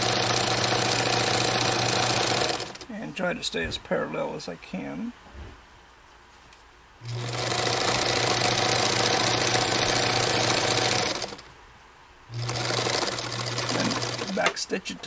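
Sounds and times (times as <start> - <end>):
sewing machine stitching: 0.0 - 2.9, 7.0 - 11.5, 12.3 - 14.6.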